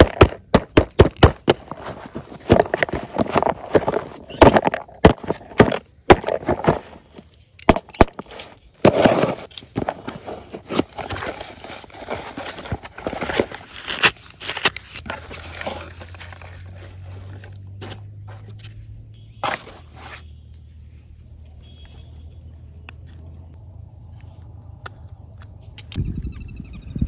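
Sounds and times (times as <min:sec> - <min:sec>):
paper wrapping rustling: 0:08.9 - 0:17.6.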